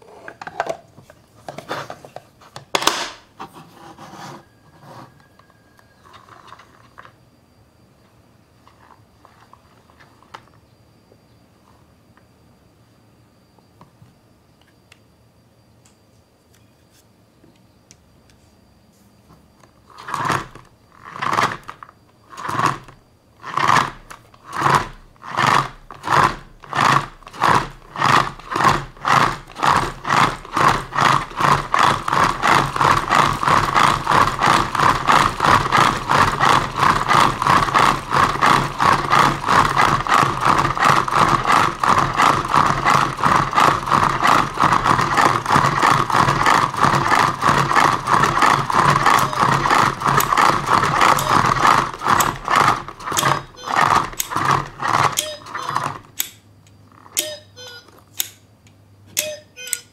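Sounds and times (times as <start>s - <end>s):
hand-cranked egg spinner whirring: 4.2s - 7.2s, 19.8s - 58.4s, 59.1s - 59.9s.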